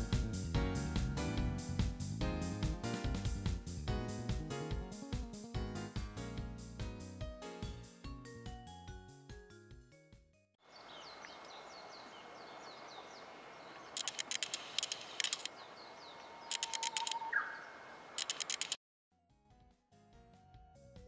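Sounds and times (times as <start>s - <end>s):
music: 0.0s - 10.6s, 19.1s - 21.0s
outdoor hiss: 10.7s - 16.5s
birds chirping: 10.7s - 18.8s
rapid clicking bursts: 14.0s - 15.5s, 16.5s - 17.2s, 18.2s - 18.8s.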